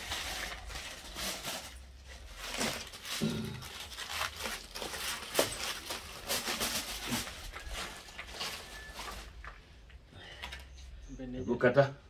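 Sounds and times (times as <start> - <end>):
aluminium foil crinkling: 0.0 - 10.8.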